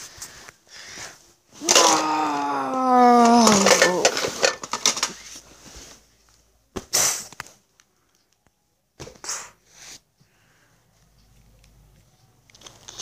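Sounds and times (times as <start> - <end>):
person's voice sliding down in pitch: 1.6 - 4.0.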